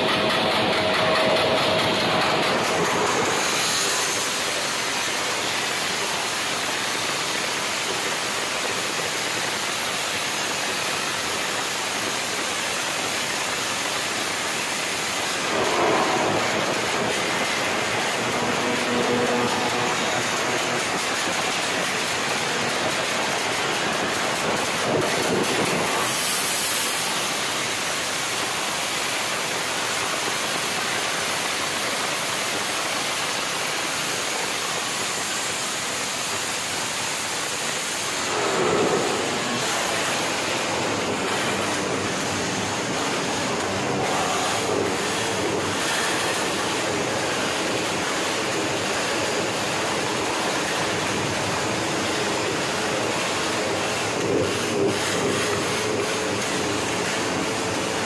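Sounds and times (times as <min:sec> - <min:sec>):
motorcycle revving high: 0:15.3 - 0:25.0.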